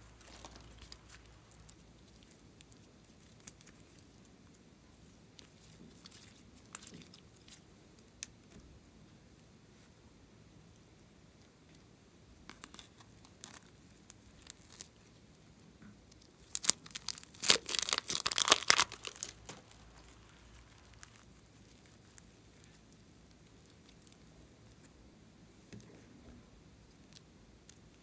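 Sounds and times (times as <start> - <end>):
plastic bag crinkling and tearing: 0.0 - 2.4, 16.2 - 22.2.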